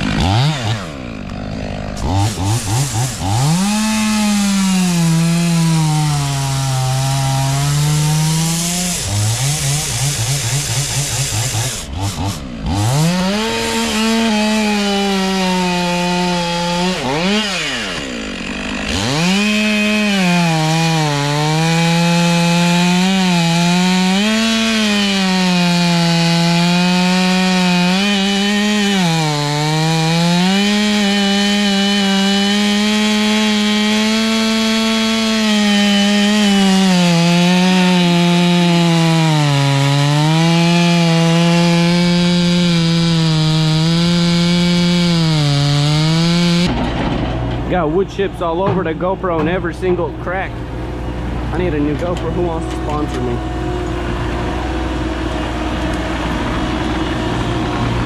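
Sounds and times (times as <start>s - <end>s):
chainsaw cutting wood: 0.0s - 50.3s, 51.2s - 58.0s.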